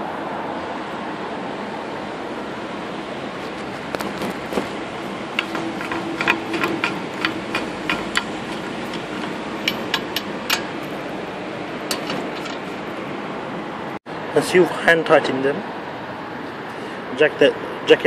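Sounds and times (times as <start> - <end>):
metallic clicks of wheel nuts: 5.3 - 11.2, 11.8 - 12.8.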